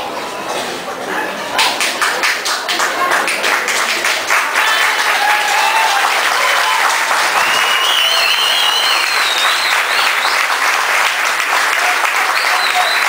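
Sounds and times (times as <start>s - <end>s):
crowd applauding: 1.6s - 13.0s
high-pitched cheering: 4.4s - 13.0s.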